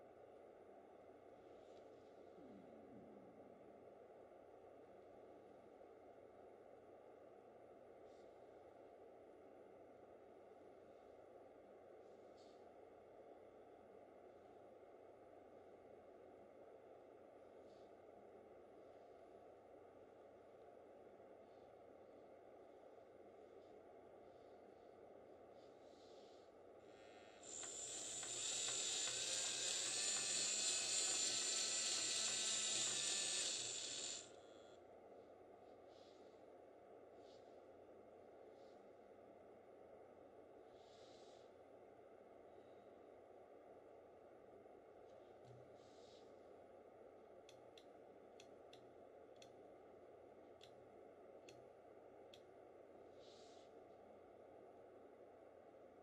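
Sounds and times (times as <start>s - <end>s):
small electric motor whining: 27.0s - 34.5s.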